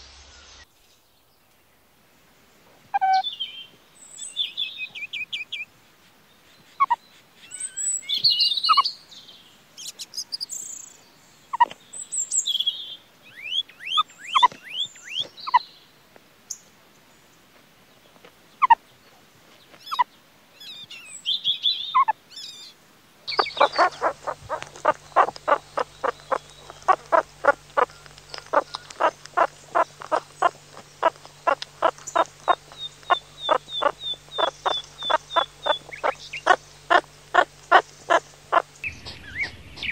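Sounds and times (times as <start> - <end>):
meerkat calls: 2.9 - 3.2, 23.3 - 38.7
high bird chirps: 23.3 - 39.9.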